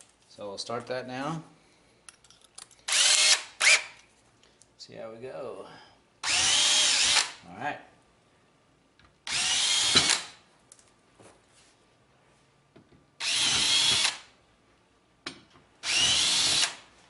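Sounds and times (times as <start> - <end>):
cordless drill bursts: 2.9 - 4.0, 6.2 - 7.4, 9.3 - 10.4, 13.2 - 14.3, 15.8 - 16.9.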